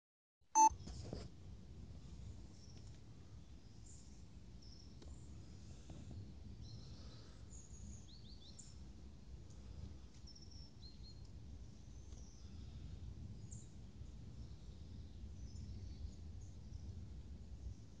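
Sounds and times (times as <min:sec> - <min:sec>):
small birds chirping: 0:03.5 - 0:17.0.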